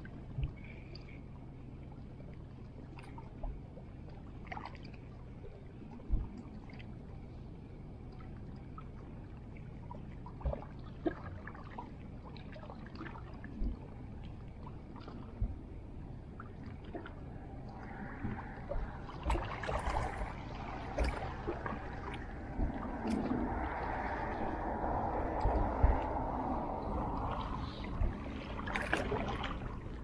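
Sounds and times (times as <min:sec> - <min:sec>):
small waves lapping on rocks: 0:18.7 - 0:30.0.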